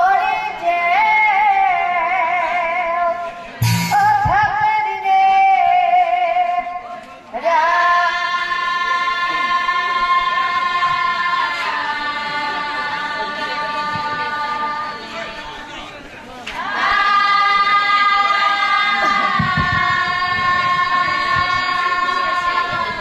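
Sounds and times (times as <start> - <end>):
loud drum hit: 3.6 - 4.7
woman singing: 3.9 - 6.8.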